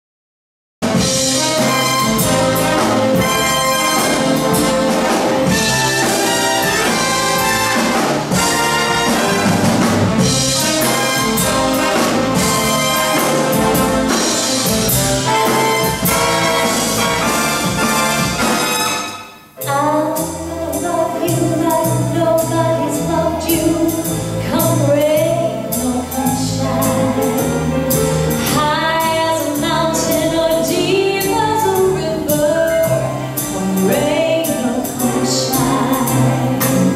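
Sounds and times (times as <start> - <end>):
orchestra with brass playing: 0.8 - 36.9
woman singing into microphone: 28.5 - 33.0, 33.6 - 36.9.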